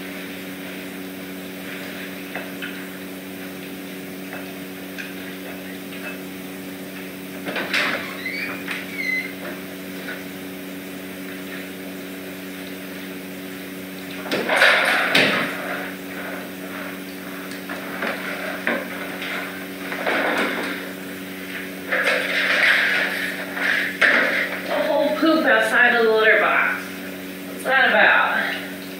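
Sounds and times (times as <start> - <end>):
steady low hum: 0.0 - 28.9
knocks and rustling: 7.4 - 10.2, 14.1 - 24.8.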